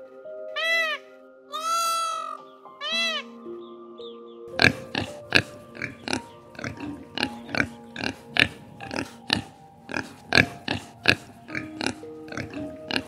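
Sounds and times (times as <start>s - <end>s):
soft background music: 0.0s - 13.0s
young pigs grunting: 4.6s - 13.0s.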